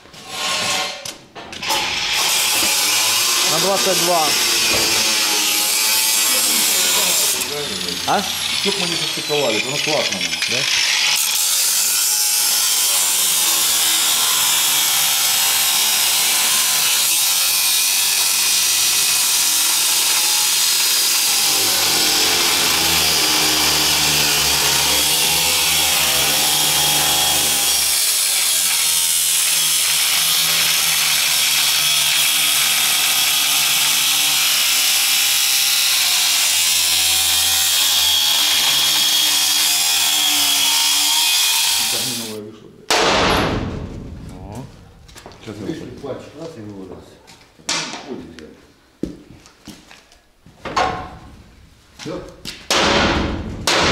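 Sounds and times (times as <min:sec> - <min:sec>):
angle grinder cutting steel: 0:01.6 - 0:42.4.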